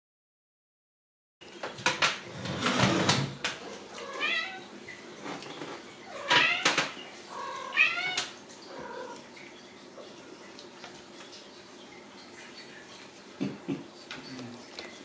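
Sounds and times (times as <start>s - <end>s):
kittens meowing: 6.1s - 9.2s.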